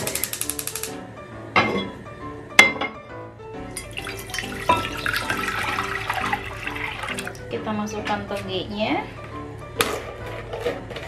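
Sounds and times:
background music: 0:00.0 - 0:11.0
water pouring into pot: 0:03.8 - 0:07.4.

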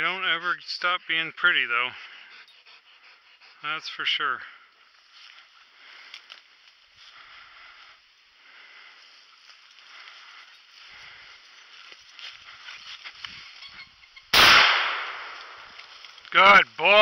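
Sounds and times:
footsteps through dry leaves: 0:09.0 - 0:13.7
loud shotgun shot: 0:14.3 - 0:15.7.

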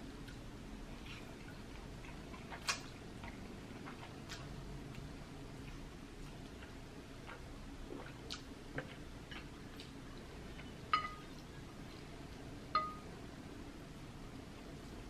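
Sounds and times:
quiet chewing and mouth clicks: 0:00.2 - 0:12.5
dishware clinking: 0:11.0 - 0:11.2.

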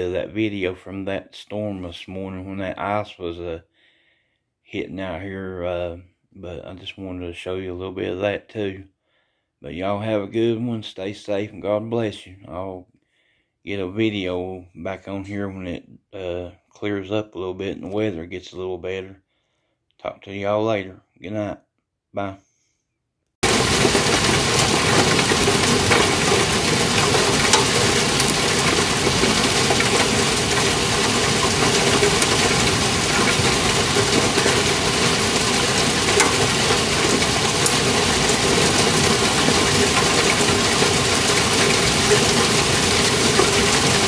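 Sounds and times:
hail and rain falling: 0:23.4 - 0:44.0
hailstones ticking: 0:23.4 - 0:44.0.

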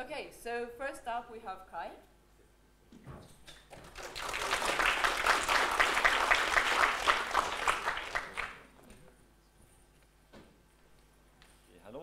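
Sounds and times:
audience applauding: 0:03.7 - 0:08.7.

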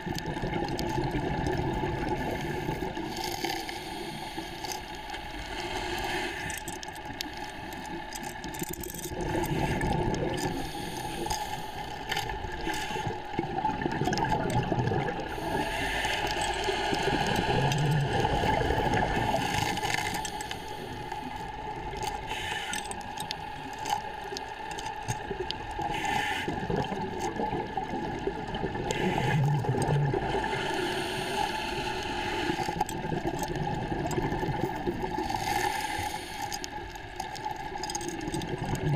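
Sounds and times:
exhaled bubbles gurgling: 0:00.0 - 0:38.9
scuba regulator breathing: 0:02.2 - 0:08.4, 0:09.2 - 0:13.3, 0:15.2 - 0:23.5, 0:25.8 - 0:26.8, 0:28.9 - 0:32.9, 0:35.1 - 0:37.2.

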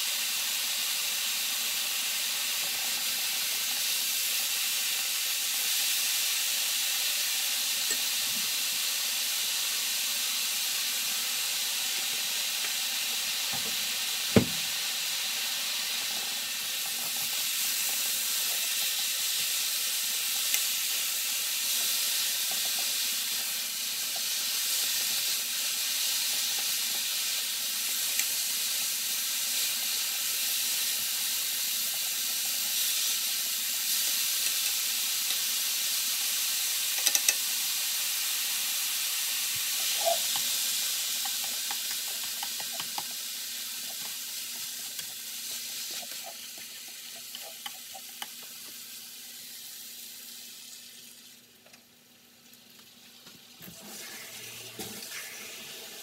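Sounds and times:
food sizzling on stove: 0:00.0 - 0:56.0
sharp knock: 0:14.4 - 0:14.6.

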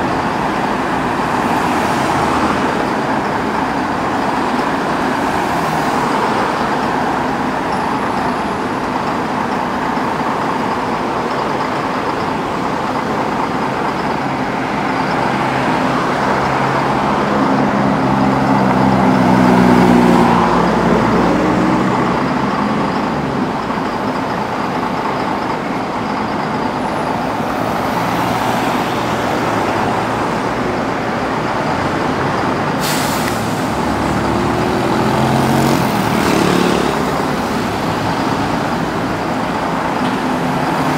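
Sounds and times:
road traffic: 0:00.0 - 0:40.9
vehicle engine passing: 0:33.4 - 0:38.2.

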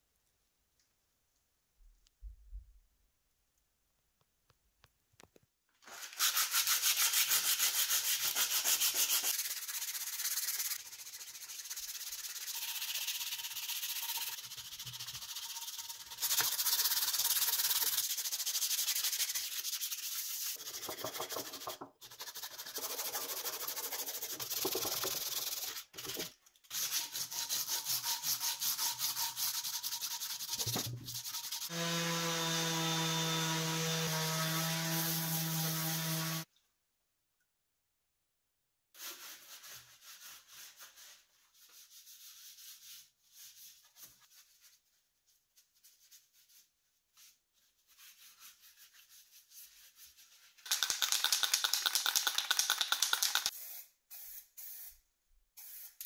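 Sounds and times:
sandpaper rasping on filler: 0:05.9 - 0:36.5, 0:39.0 - 0:50.7.

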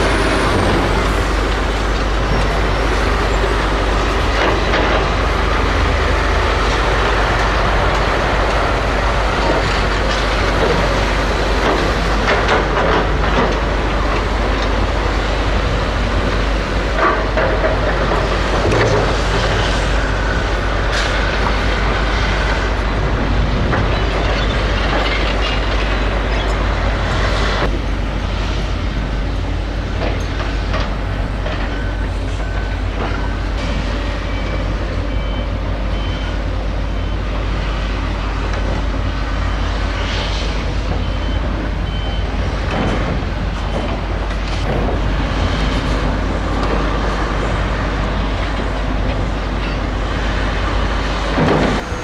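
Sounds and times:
heavy construction machinery running: 0:00.0 - 0:52.0
reversing alarms beeping: 0:30.9 - 0:47.2.

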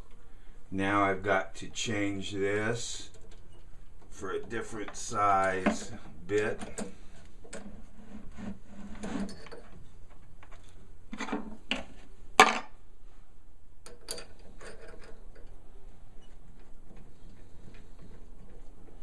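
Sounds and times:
small clicks and rubs: 0:05.7 - 0:12.1.

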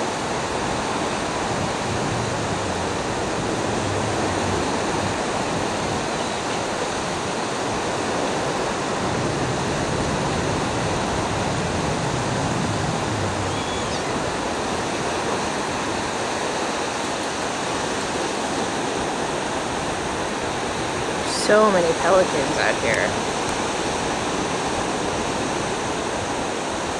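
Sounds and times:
ocean surf on beach: 0:00.0 - 0:26.9.

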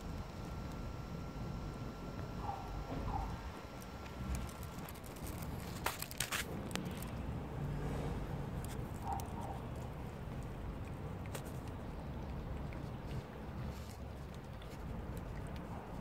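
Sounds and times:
cat chewing wet food: 0:00.0 - 0:16.0.

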